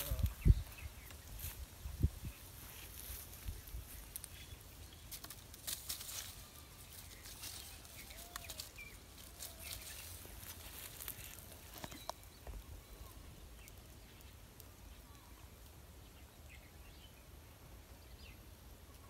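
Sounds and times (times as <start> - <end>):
faint bird chirps: 6.2 - 17.2
clicks and rustles of fishing gear: 11.1 - 12.2.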